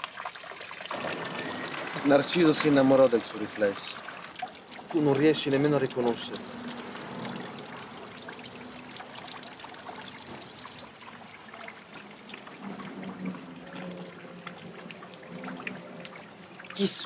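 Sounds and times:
water splashing into fountain: 0.0s - 17.0s.

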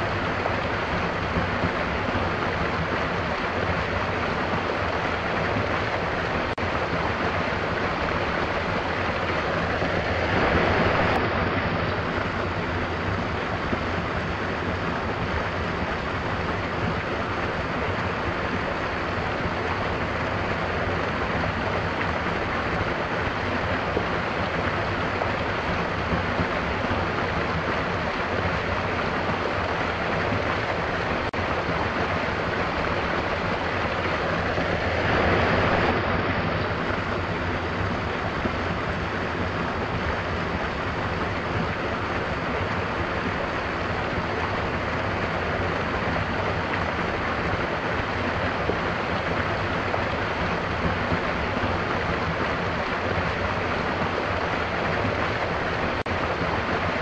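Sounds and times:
small waterfall pouring into pool: 0.0s - 57.0s.

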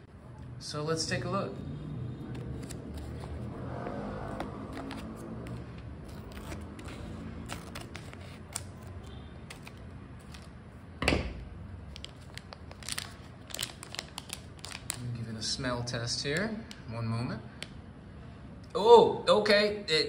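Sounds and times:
snack pouch tearing open: 2.3s - 10.5s, 11.9s - 15.0s
snack pouch crinkling: 4.2s - 10.5s, 11.9s - 15.1s.

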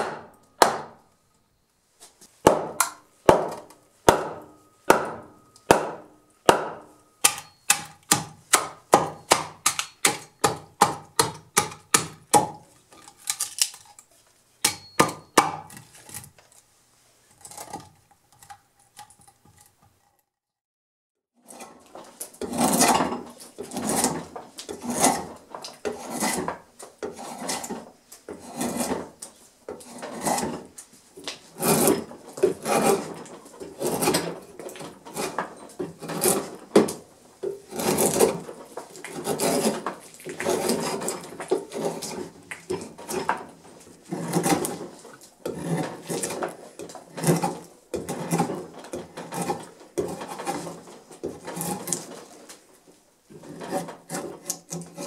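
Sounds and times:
drawknife scraping bark: 23.6s - 27.8s, 31.5s - 34.3s, 37.7s - 38.4s, 39.0s - 43.4s, 53.4s - 55.0s.

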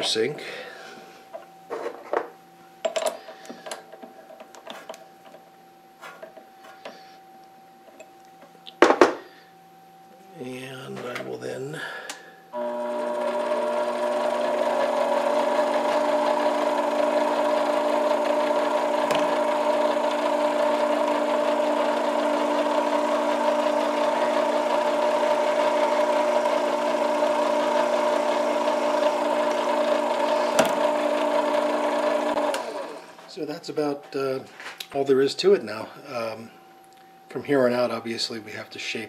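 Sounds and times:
metal lathe motor whining: 12.6s - 33.3s.

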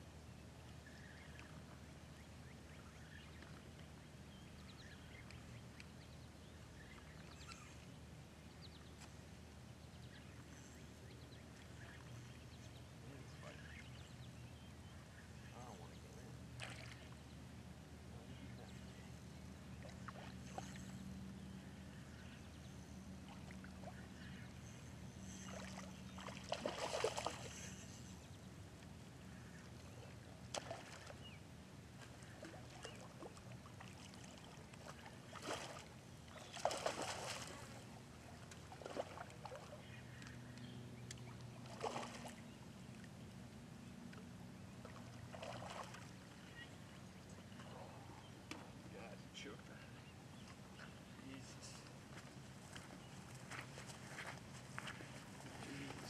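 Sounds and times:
fish splashing in water: 25.6s - 27.6s, 32.4s - 37.7s, 41.7s - 42.4s, 44.9s - 46.1s.

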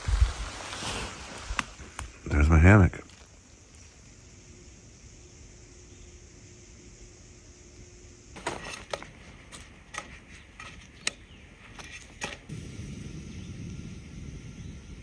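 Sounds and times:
gas stove burner hissing: 7.8s - 15.0s.

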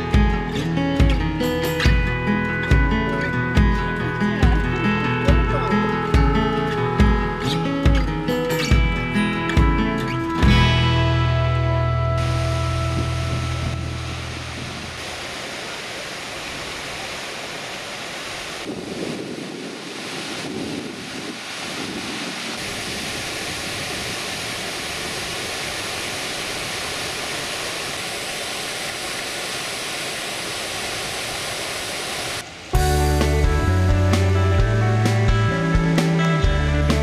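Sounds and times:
fountain water splashing: 11.5s - 34.6s.

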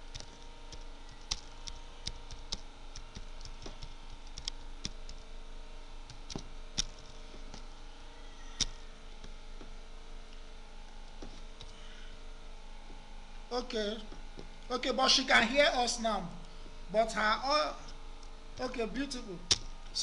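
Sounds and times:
computer keyboard typing: 0.0s - 5.2s.

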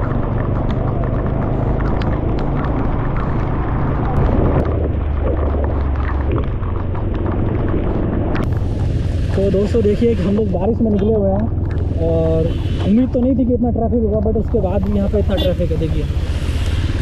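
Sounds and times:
wind buffeting microphone: 0.0s - 13.4s
motorbike engine: 0.0s - 17.0s
road noise: 0.0s - 17.0s.

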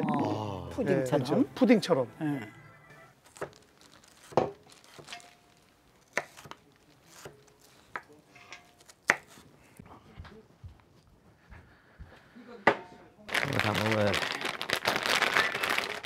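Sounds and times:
kitchen utensils clinking: 8.2s - 8.8s.

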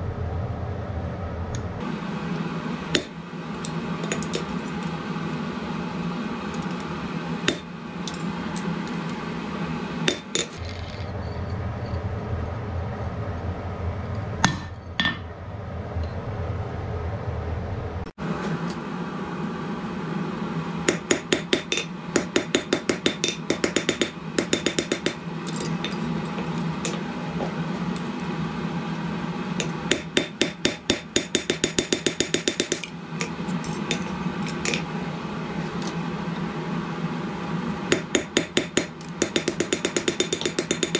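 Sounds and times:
steady low hum: 0.0s - 40.9s
hammer striking hot metal on anvil: 2.9s - 3.2s, 7.4s - 7.7s, 10.0s - 10.8s, 20.9s - 26.1s, 29.6s - 33.0s, 37.9s - 40.9s.

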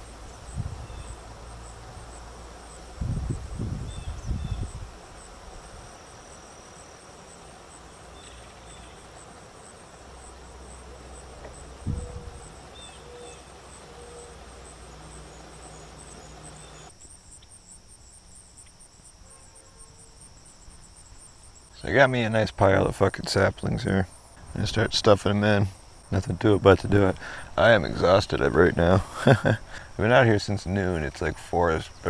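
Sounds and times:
crickets and insects trilling: 0.0s - 32.0s
low rumbling thumps: 11.4s - 12.8s.

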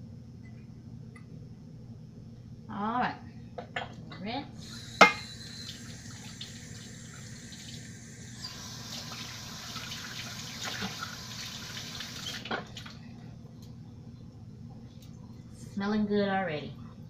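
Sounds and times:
kitchen tap running into sink: 4.6s - 13.0s.

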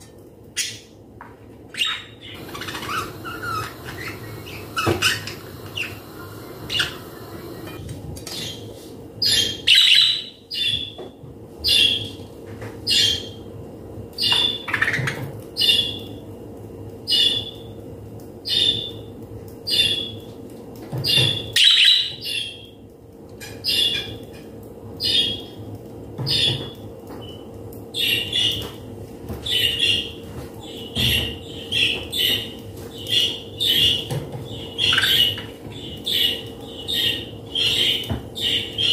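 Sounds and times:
faint steady hum: 0.0s - 9.2s.

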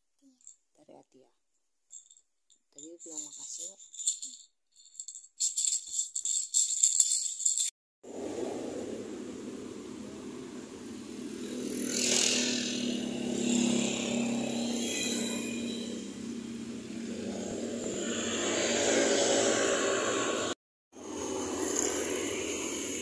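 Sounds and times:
motor scooter engines running: 8.1s - 23.0s
vehicles passing: 8.1s - 23.0s.

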